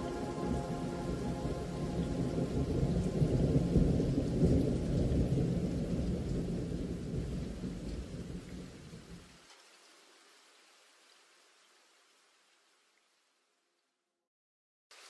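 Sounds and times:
rolling thunder: 0.0s - 9.1s
rain: 0.0s - 13.8s.

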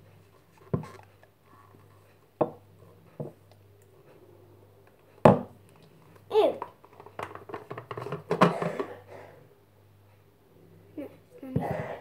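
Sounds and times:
plastic jug knocks and clicks: 7.2s - 8.9s.

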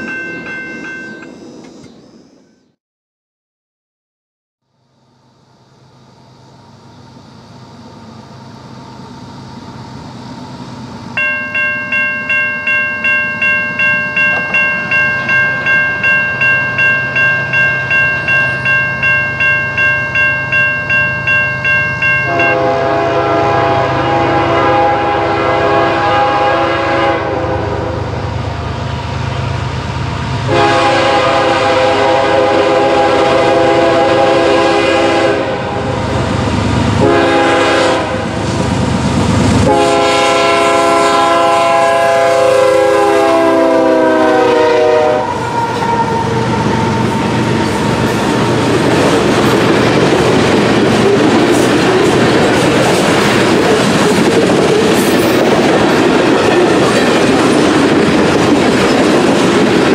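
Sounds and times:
locomotive horn blasts: 22.2s - 28.2s, 30.4s - 36.2s, 37.0s - 38.4s, 39.6s - 47.1s
freight cars rumbling: 45.3s - 59.9s.

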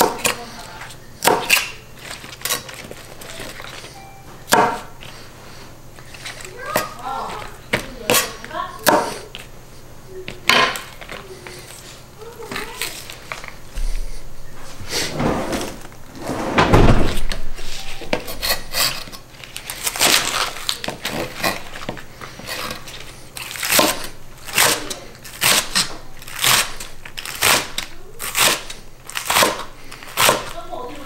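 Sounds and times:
knife slicing green onions: 0.0s - 3.8s, 8.1s - 9.4s, 18.1s - 19.2s, 19.8s - 30.6s.

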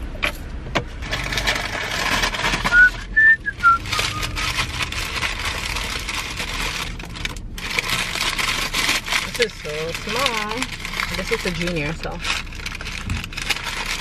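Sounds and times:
rustling and handling noise: 0.2s - 14.0s
whistled notes: 2.7s - 4.5s.

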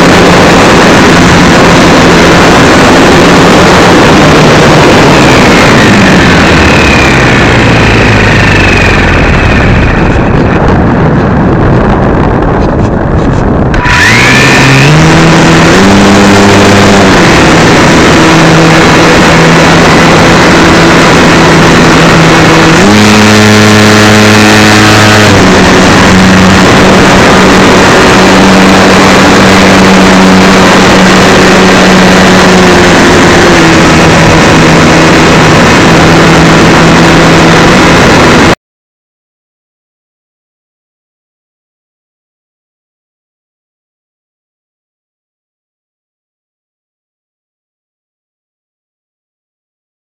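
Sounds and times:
electric motor and propeller hum: 0.0s - 38.6s
wind rush: 0.0s - 38.6s.

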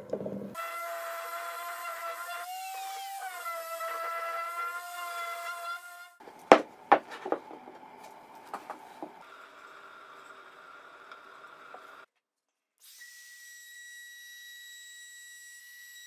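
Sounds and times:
wooden blocks knocking: 6.4s - 7.8s.

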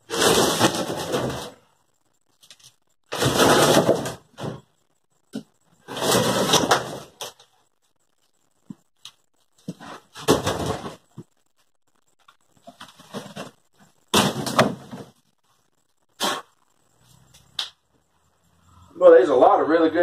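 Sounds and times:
wooden panel scraping floor: 5.8s - 7.2s.

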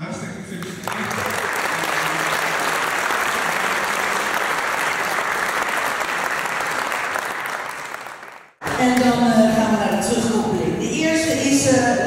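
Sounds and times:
audience applauding: 0.6s - 9.1s.

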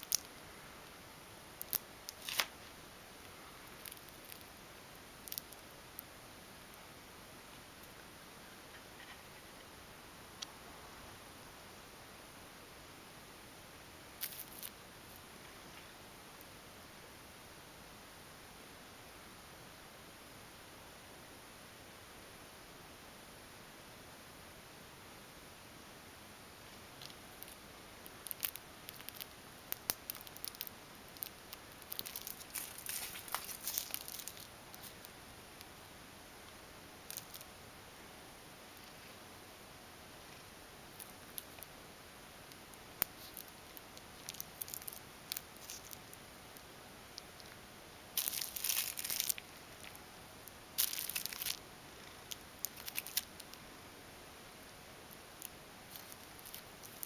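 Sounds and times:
plastic straw clicking and rustling: 28.2s - 35.1s, 37.1s - 37.5s, 43.0s - 46.0s, 48.2s - 50.0s, 50.8s - 51.6s, 52.3s - 53.5s, 55.4s - 57.0s.

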